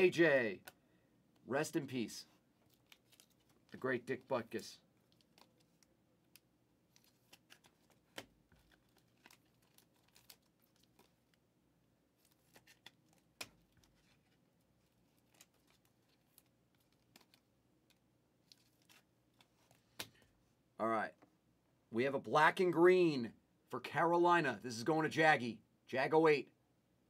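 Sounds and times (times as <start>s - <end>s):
plastic sleeves crinkling: 2.5s - 11.4s, 12.1s - 20.4s.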